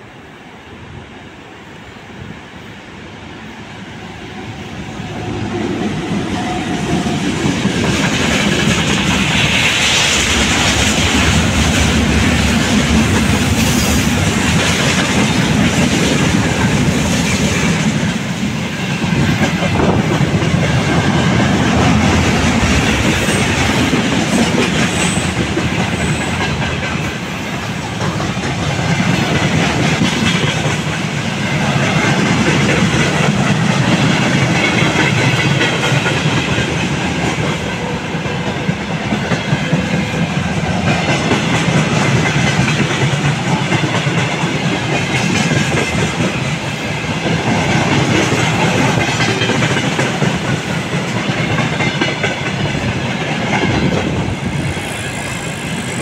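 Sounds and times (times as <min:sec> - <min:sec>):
electric locomotive passing: 0:00.0 - 0:56.0
wheels clacking over rail joints: 0:19.1 - 0:56.0.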